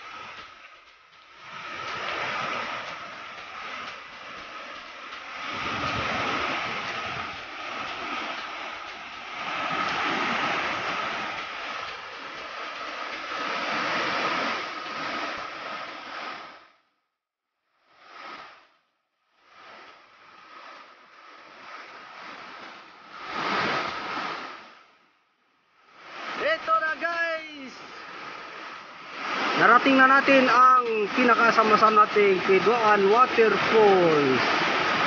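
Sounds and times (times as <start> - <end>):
stream rushing over boulders: 0.0 - 15.5, 26.0 - 27.7, 28.4 - 35.0.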